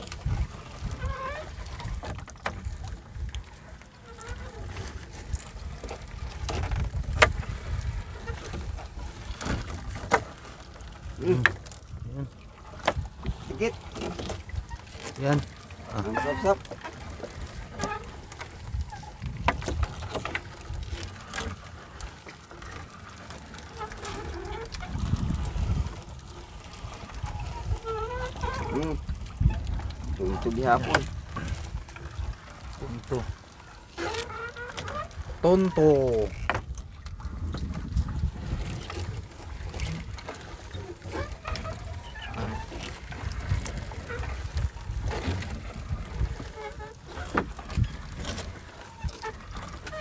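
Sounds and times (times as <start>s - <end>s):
wind and water rumble: 0.0s - 50.0s
net knocking against wooden hull: 19.2s - 20.6s.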